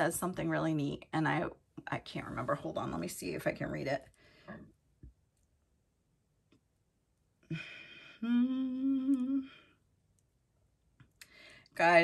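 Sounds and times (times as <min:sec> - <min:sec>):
woman humming: 0:07.5 - 0:09.8.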